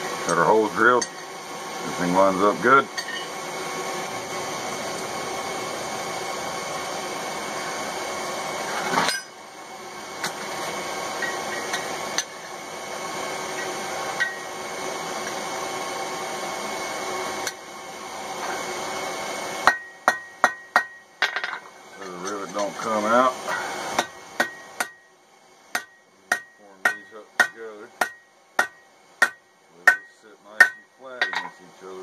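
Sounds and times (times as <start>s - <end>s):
steady background hiss: 19.6s - 32.0s
hammer blows on anvil: 25.7s - 31.6s.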